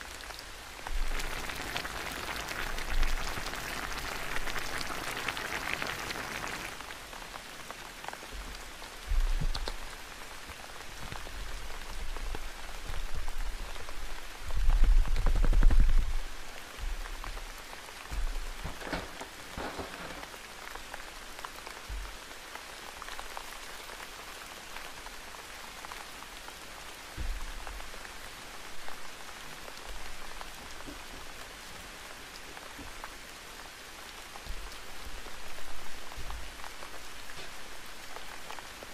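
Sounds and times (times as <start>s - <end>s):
steady rain hiss: 0.0s - 38.9s
paper rustling: 18.7s - 20.4s.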